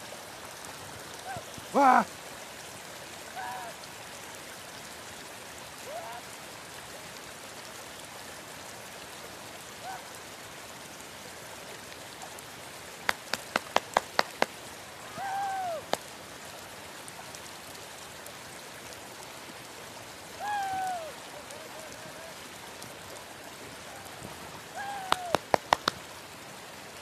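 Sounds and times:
drawn-out high calls: 0:01.2 - 0:02.1, 0:15.0 - 0:16.0, 0:20.4 - 0:21.2, 0:24.7 - 0:25.9
sharp clicks: 0:25.2 - 0:26.0.

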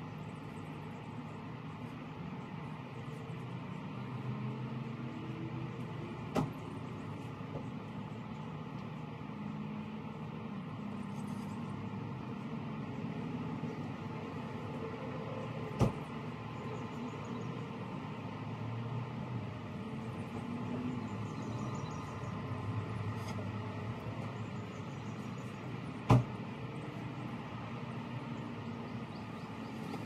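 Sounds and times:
low outdoor rumble: 0:00.0 - 0:30.0
sharp knocks on car door: 0:15.8 - 0:16.0, 0:26.1 - 0:26.4.

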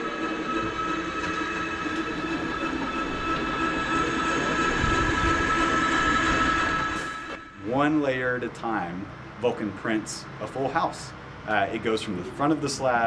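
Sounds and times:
machine whine over rumble: 0:00.0 - 0:10.4.

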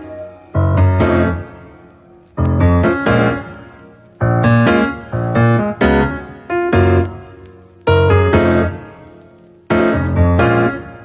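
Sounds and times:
piano chords ringing: 0:00.0 - 0:11.0.

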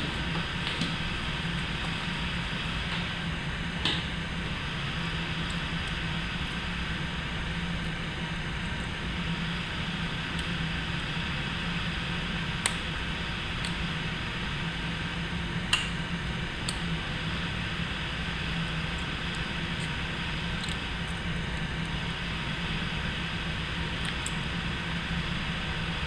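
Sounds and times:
fan-like hum: 0:00.0 - 0:26.0.

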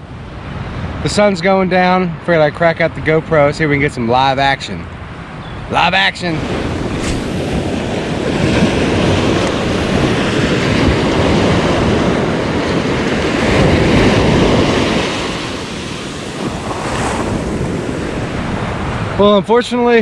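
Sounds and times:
wind rumbling on microphone: 0:02.9 - 0:20.0
ocean surf breaking: 0:04.1 - 0:20.0.

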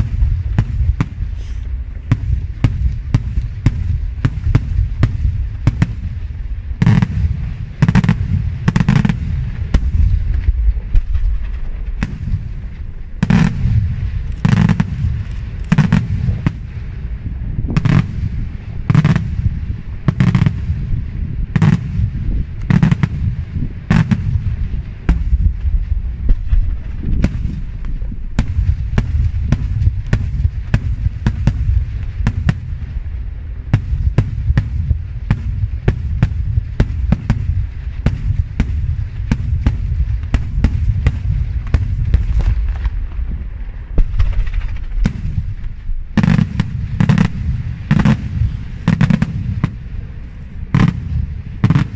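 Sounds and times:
fireworks bangs: 0:00.0 - 0:51.9
low rumble of reports: 0:45.0 - 0:51.9.

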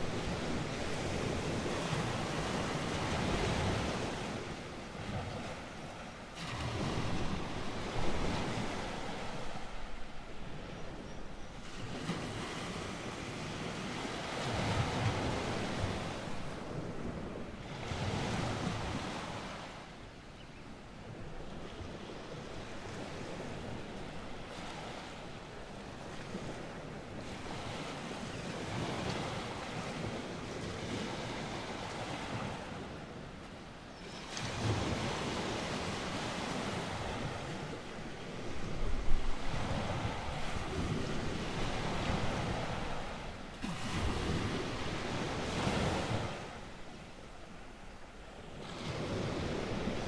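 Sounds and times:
ocean waves washing in: 0:00.0 - 0:10.7, 0:34.6 - 0:50.0.

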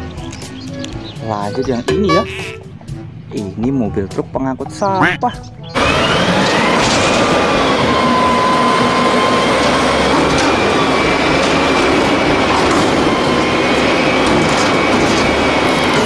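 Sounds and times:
diesel engine running hard: 0:05.6 - 0:16.0
hydraulic pump whine: 0:05.8 - 0:16.0.

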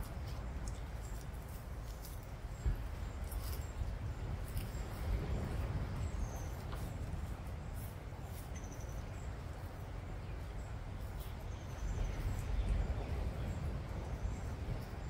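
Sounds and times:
tortoises tearing grass: 0:00.0 - 0:08.8
steady low rumble: 0:00.0 - 0:15.0.

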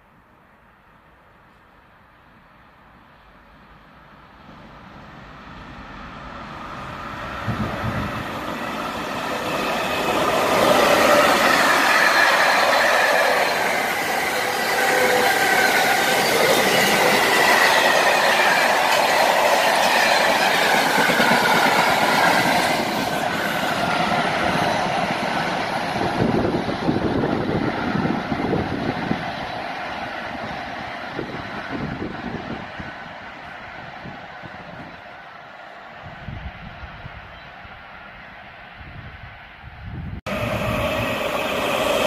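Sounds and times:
freight train rumble: 0:02.7 - 0:42.0
wheels squealing: 0:08.4 - 0:24.8.

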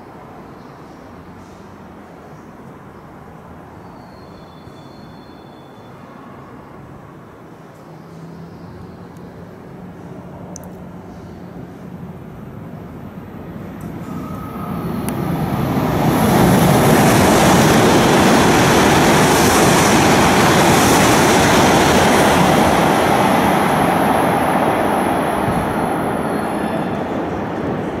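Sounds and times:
train passing at speed: 0:09.4 - 0:28.0.

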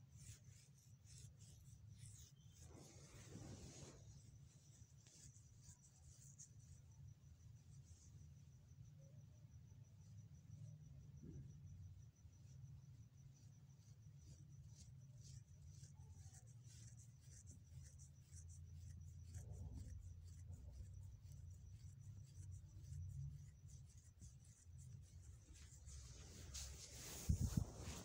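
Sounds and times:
light scattered ticks: 0:09.5 - 0:27.1.

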